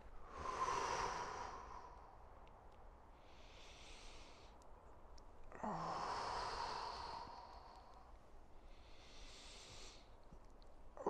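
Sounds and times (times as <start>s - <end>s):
man breathing deeply: 0.2s - 2.3s, 3.1s - 4.6s, 5.5s - 10.2s.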